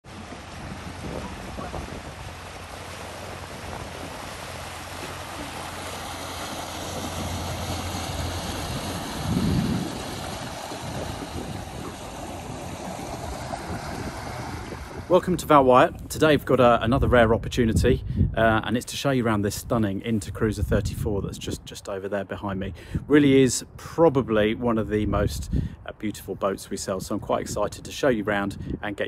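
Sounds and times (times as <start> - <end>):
low rumble: 0.0 - 16.0
boat engine humming: 0.0 - 16.1
moving water: 0.0 - 17.7
wind on microphone: 0.0 - 21.8, 22.5 - 23.5, 24.2 - 29.0.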